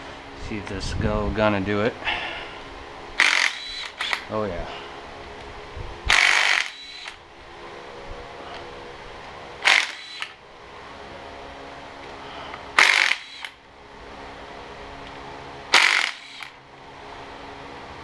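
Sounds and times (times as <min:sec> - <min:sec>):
steady background hum: 0:00.0 - 0:18.0
cordless power tool spinning: 0:03.2 - 0:04.3, 0:06.1 - 0:07.2, 0:09.6 - 0:10.4, 0:12.8 - 0:13.6, 0:15.7 - 0:16.6.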